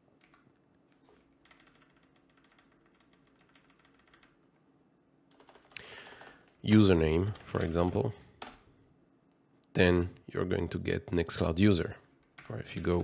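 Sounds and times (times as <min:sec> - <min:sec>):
faint keyboard typing: 0:00.0 - 0:04.6, 0:05.3 - 0:08.7, 0:12.0 - 0:13.0.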